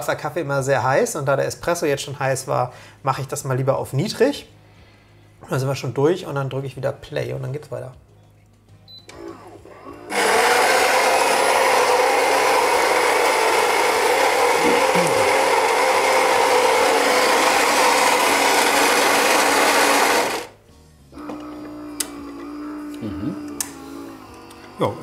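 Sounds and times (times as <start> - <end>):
coffee machine humming: 9.1 - 20.6, 21.2 - 25.0
coffee grinder grinding beans: 9.8 - 20.6.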